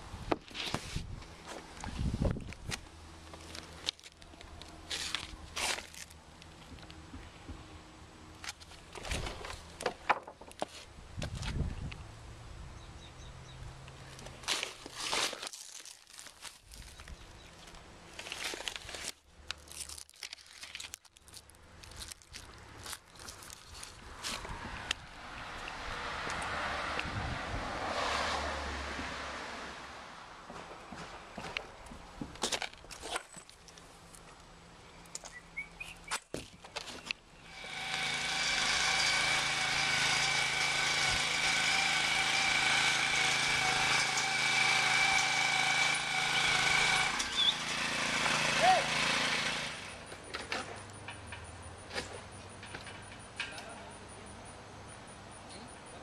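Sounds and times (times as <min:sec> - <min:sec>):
plastic film crinkling: 0:03.3 - 0:06.6, 0:14.3 - 0:24.4
tearing: 0:03.5 - 0:06.2, 0:14.4 - 0:24.9
ladder hoist motor whining: 0:37.4 - 0:51.4.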